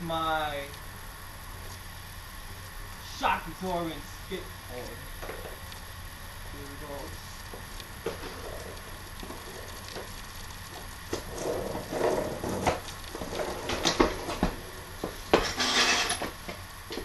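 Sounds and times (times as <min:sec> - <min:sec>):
bicycle knocks and clatter: 0:07.5 - 0:17.0.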